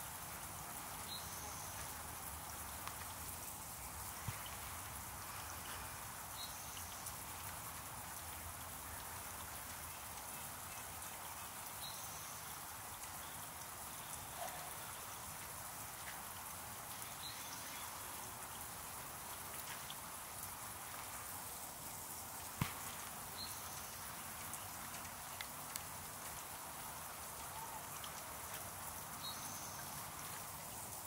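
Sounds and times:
fountain water splashing: 0:00.0 - 0:31.0
faint ticks: 0:22.4 - 0:28.7.

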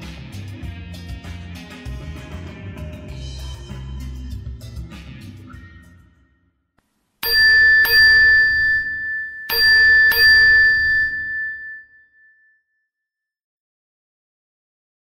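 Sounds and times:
bell-like chime strikes: 0:07.2 - 0:12.6.

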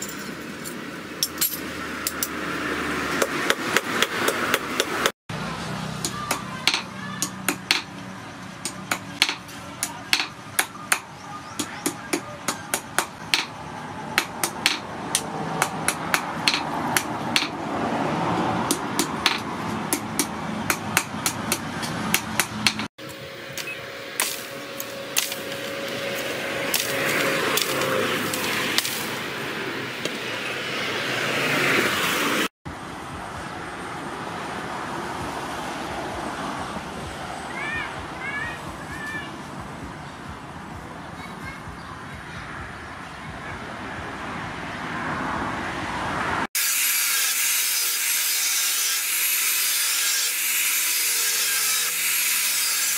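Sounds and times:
hammer striking metal on anvil: 0:06.0 - 0:08.0, 0:08.6 - 0:13.6, 0:14.2 - 0:17.6.

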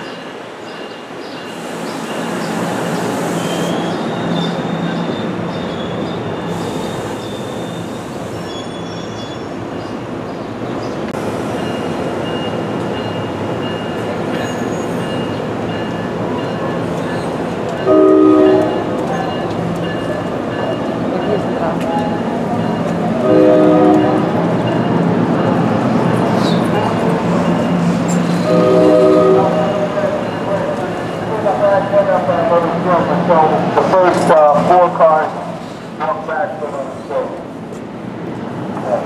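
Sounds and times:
train rumbling: 0:00.0 - 0:39.0
train air hiss: 0:01.5 - 0:04.0, 0:06.4 - 0:09.0
train horn blast: 0:17.9 - 0:18.9, 0:23.2 - 0:24.3, 0:28.4 - 0:29.7.

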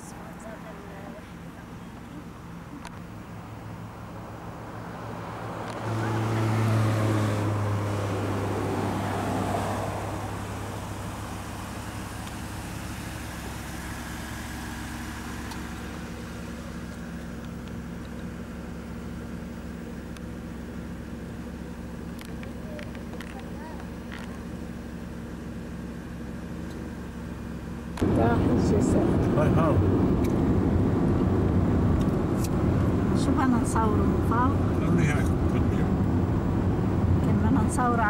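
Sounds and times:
steady low engine hum: 0:00.0 - 0:38.0
vehicle passing: 0:03.4 - 0:17.3, 0:28.0 - 0:38.0.

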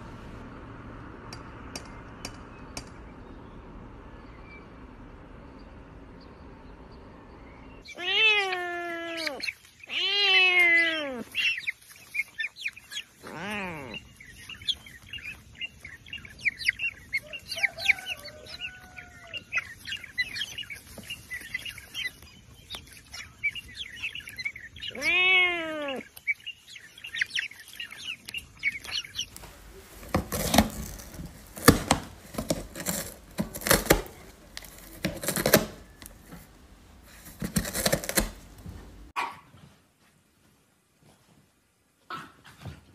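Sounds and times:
small birds chirping: 0:00.4 - 0:39.2
cat meowing: 0:07.8 - 0:11.4, 0:13.2 - 0:14.0, 0:24.9 - 0:26.1
cat clawing cardboard box: 0:29.3 - 0:39.1.

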